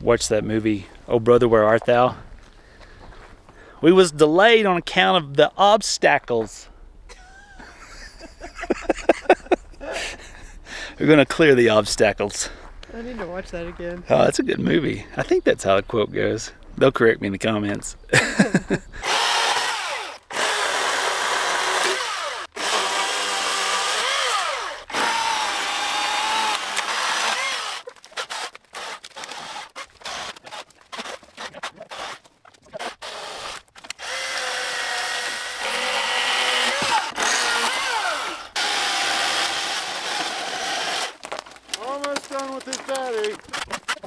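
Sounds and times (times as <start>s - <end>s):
chainsaw cutting wood: 19.0s - 44.0s.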